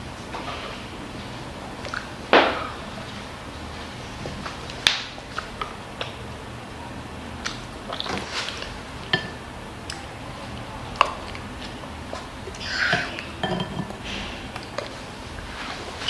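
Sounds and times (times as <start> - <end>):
wooden spoon tapping and scraping dishes: 9.1 - 9.4, 12.9 - 14.9.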